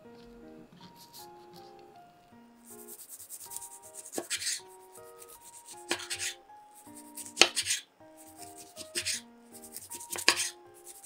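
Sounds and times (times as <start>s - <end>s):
knife sawing through food: 2.9s - 11.0s.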